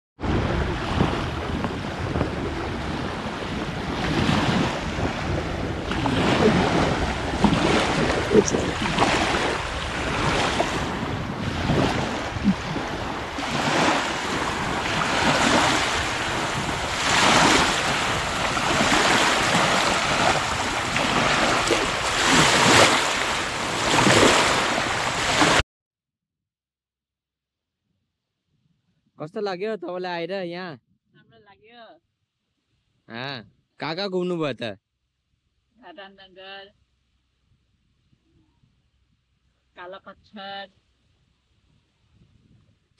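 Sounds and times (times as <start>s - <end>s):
small waves lapping on shore: 0.2s - 25.6s
wind buffeting microphone: 0.2s - 25.6s, 41.7s - 42.9s.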